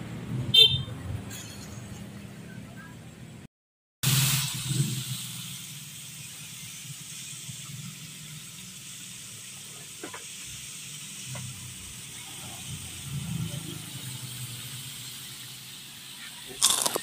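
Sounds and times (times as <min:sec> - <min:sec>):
chicken deep-frying in oil: 0:04.0 - 0:17.0.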